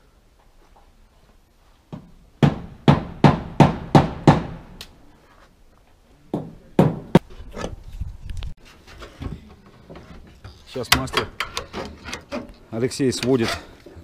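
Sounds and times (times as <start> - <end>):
hammer striking metal roofing: 2.0 - 4.7, 6.4 - 7.3.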